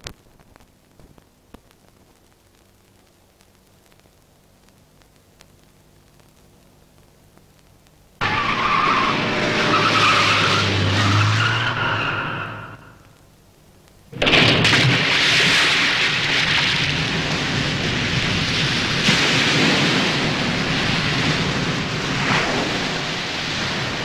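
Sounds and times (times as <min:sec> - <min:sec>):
car tyres screeching: 0:08.2 - 0:13.1.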